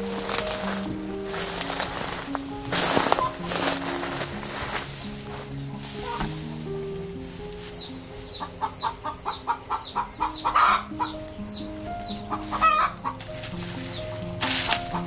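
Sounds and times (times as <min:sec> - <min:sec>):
soft piano music: 0:00.0 - 0:15.0
chickens clucking: 0:02.7 - 0:06.7, 0:07.6 - 0:15.0
chickens cackling: 0:07.7 - 0:15.0.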